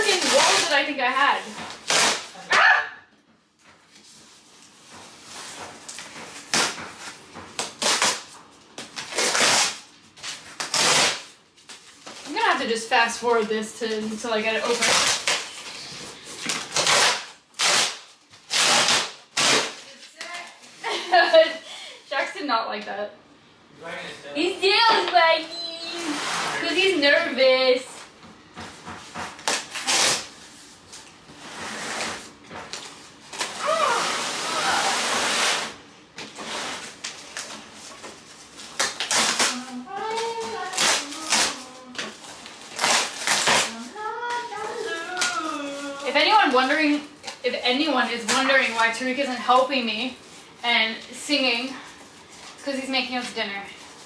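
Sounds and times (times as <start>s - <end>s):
cardboard ripping and rustling: 1.7s - 2.5s, 5.2s - 12.3s, 29.4s - 30.4s, 31.5s - 35.8s, 36.4s - 47.0s.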